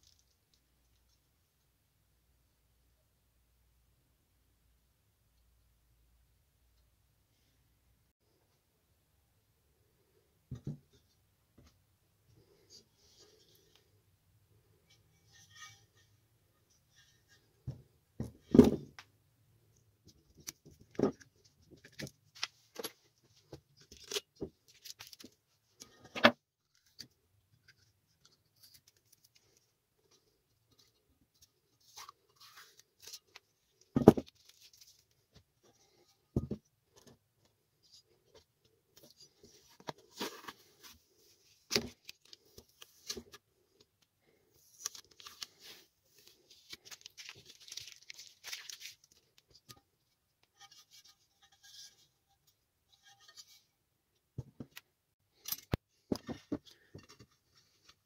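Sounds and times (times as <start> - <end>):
small parts and tools handled: 0.0 - 1.2, 19.7 - 58.0.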